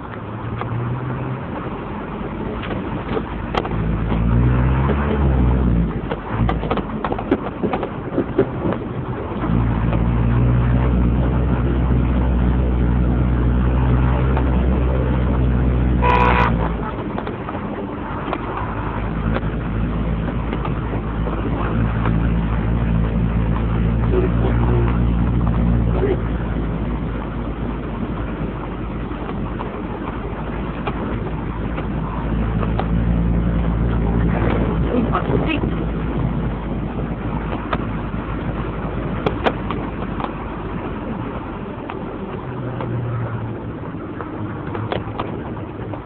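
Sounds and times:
vehicle engine revving: 0.0 - 46.0
horn toot: 16.0 - 16.9.

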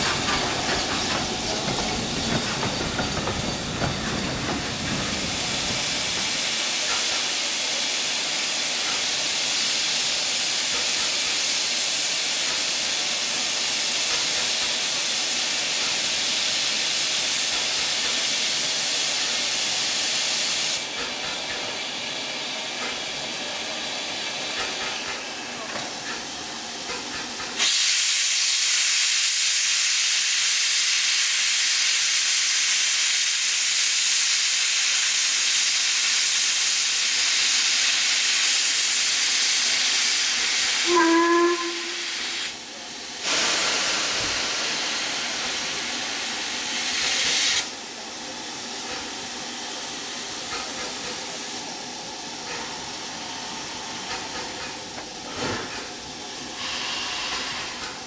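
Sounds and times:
steam hissing: 0.0 - 58.0
steam whistle toot: 40.8 - 42.5, 56.6 - 57.7.

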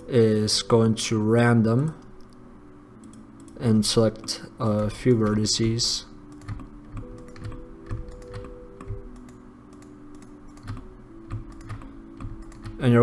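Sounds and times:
keyboard and mouse clicks: 4.2 - 5.4, 6.3 - 12.8.

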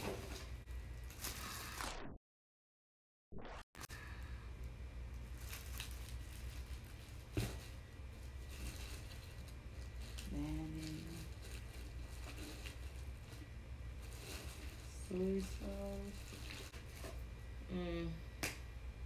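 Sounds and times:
plastic packets rustling: 5.2 - 17.2.

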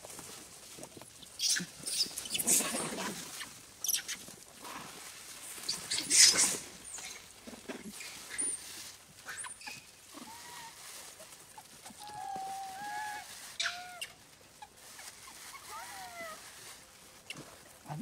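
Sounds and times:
macaques squealing and squeaking: 1.3 - 4.2, 5.7 - 7.2, 9.2 - 10.7, 11.6 - 14.2, 15.0 - 16.4.

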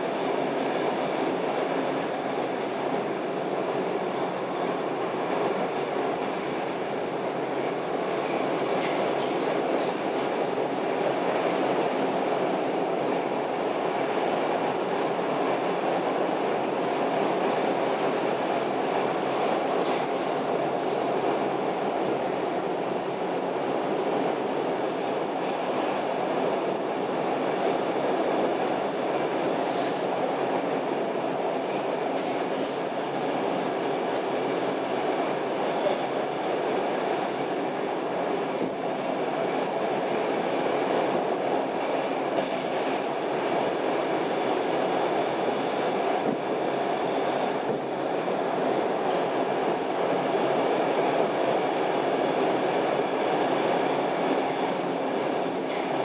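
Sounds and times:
subway wheels rumbling on rails: 0.0 - 56.0.

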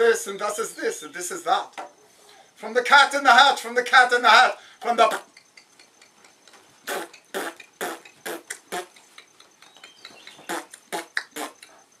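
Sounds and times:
man making breathy mouth sounds: 4.6 - 11.9.

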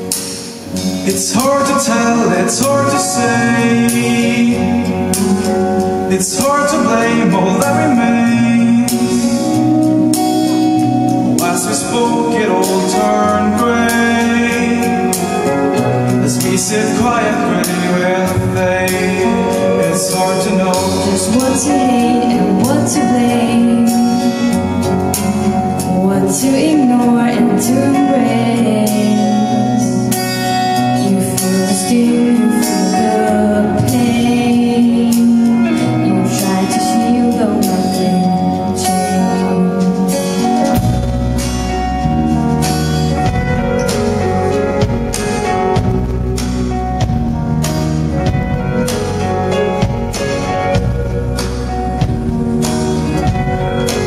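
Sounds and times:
bass and drums: 0.0 - 54.0
man singing: 0.4 - 54.0
woman singing: 16.7 - 30.1, 30.9 - 40.7.

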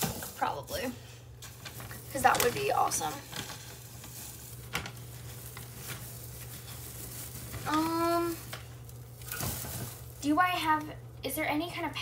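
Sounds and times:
faint handling rustle: 1.4 - 10.2.

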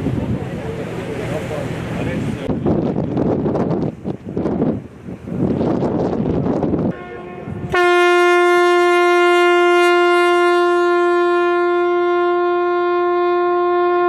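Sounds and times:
wind buffeting microphone: 0.0 - 10.8
ship's horn blast: 6.9 - 14.0.

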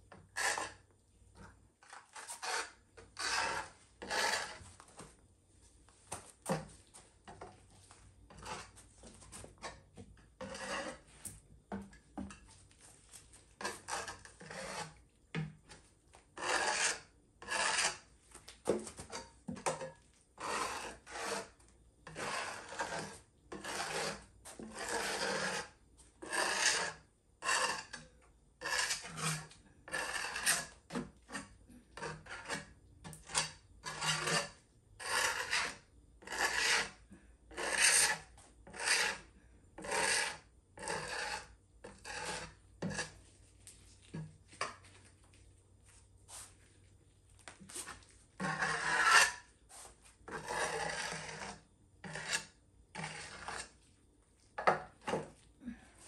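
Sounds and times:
hand scraper rasping on resin: 0.1 - 0.9, 1.8 - 4.8, 8.3 - 11.4, 13.1 - 15.0, 15.6 - 43.3, 47.6 - 53.8.

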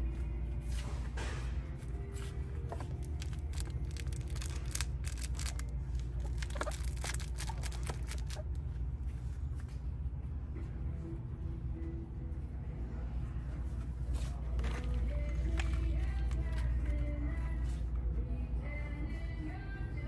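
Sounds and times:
low hum of store background: 0.0 - 20.0
packaged toy clicks and rustles: 3.0 - 8.6.

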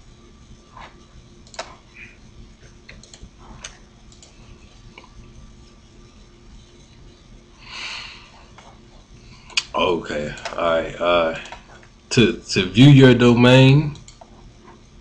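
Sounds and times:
low electrical hum: 0.0 - 15.0
computer mouse clicks: 1.4 - 1.8, 2.8 - 5.1, 11.4 - 12.0, 14.0 - 14.4.

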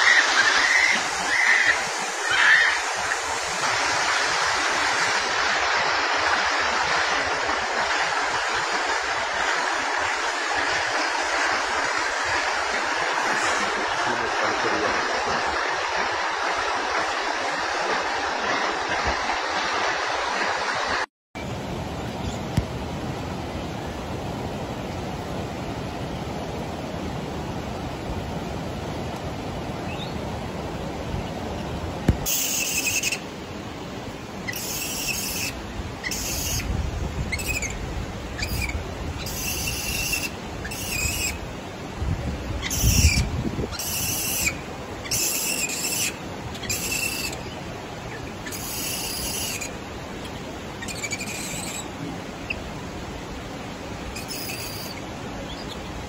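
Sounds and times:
monkeys calling: 0.0 - 3.2, 34.5 - 36.7, 37.3 - 37.8, 38.4 - 41.4, 42.6 - 47.5, 48.4 - 49.7, 50.8 - 51.8, 54.2 - 55.8
mountain stream rushing: 0.0 - 56.0.

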